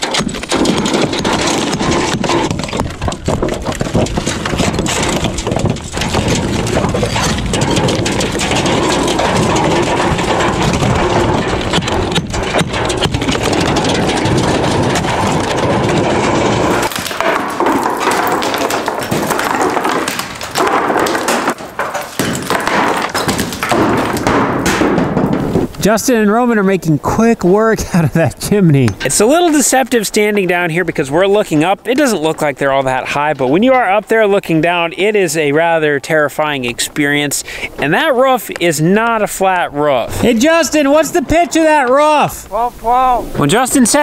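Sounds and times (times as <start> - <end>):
bricks clattering: 0.0 - 26.4, 27.4 - 42.7
hammers chipping bricks: 0.0 - 27.2, 27.9 - 42.4
wind rumble on microphone: 0.7 - 16.9.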